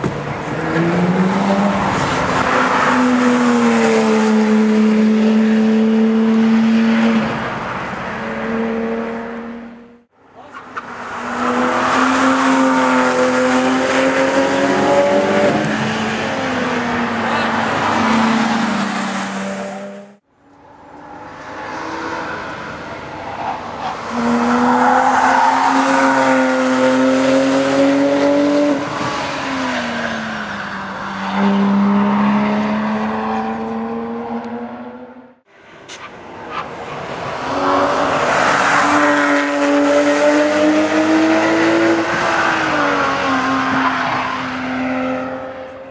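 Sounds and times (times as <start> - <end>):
race car engines passing: 0.0 - 45.9.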